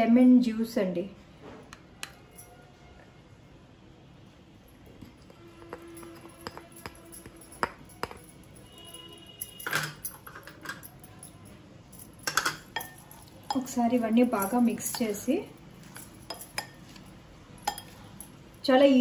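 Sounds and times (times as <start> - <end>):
soft background music: 0.9 - 10.2
kitchenware clicks: 9.6 - 11.0, 12.2 - 15.3.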